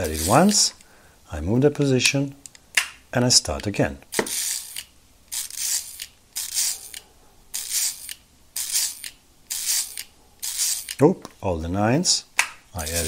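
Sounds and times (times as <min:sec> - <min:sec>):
mechanical calculator crank clicking: 0:00.0 - 0:00.6, 0:04.1 - 0:11.0, 0:12.8 - 0:13.0.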